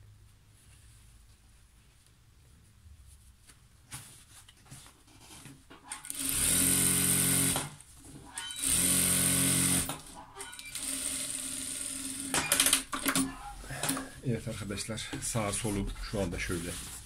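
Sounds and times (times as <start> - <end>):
sewing machine stitching: 5.9 - 7.7, 8.3 - 13.3.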